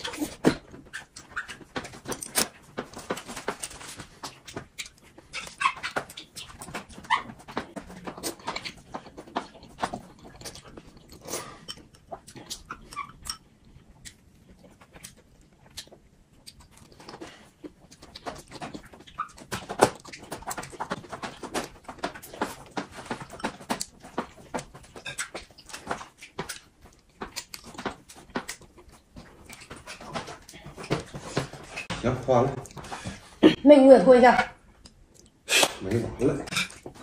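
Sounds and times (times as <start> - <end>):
chewing and slurping noodles: 3.5 - 31.9.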